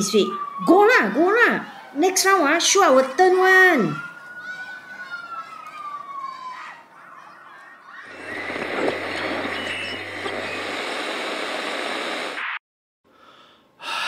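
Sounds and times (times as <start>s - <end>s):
low hum: 8.1s - 12.4s.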